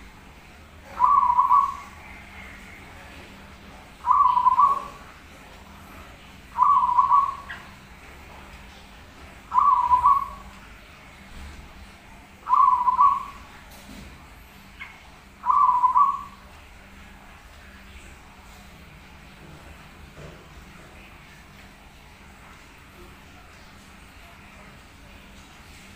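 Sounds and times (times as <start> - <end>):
dove cooing: 0.8 - 3.2, 4.0 - 5.2, 6.5 - 7.8, 9.5 - 10.6, 12.4 - 13.6, 14.8 - 16.5.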